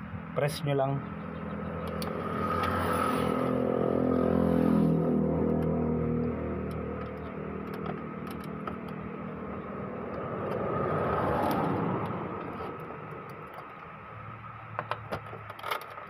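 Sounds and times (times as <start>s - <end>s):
vehicle passing: 1.1s - 13.6s.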